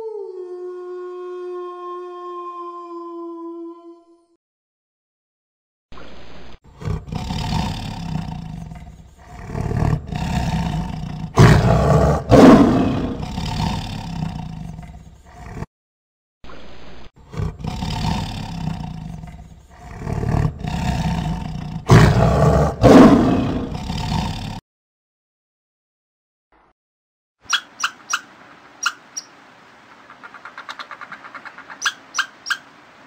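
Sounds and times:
tiger roaring and growling: 0:06.7 - 0:15.7, 0:17.2 - 0:24.6.

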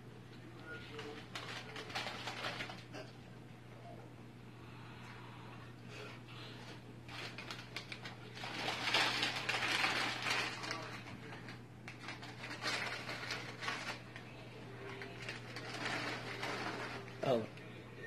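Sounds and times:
steady low hum: 0:00.0 - 0:18.0
snack bag crinkling: 0:00.9 - 0:02.9, 0:07.1 - 0:17.7.

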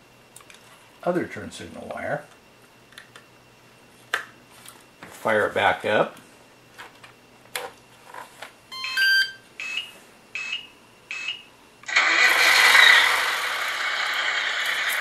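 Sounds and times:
short beeps: 0:08.7 - 0:09.8.

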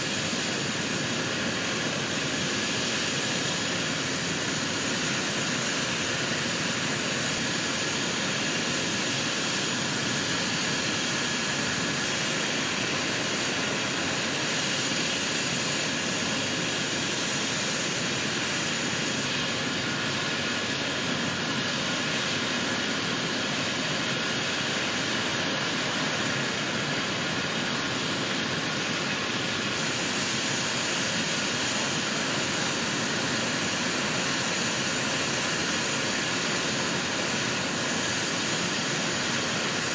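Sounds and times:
helicopter engines running: 0:00.0 - 0:39.9.

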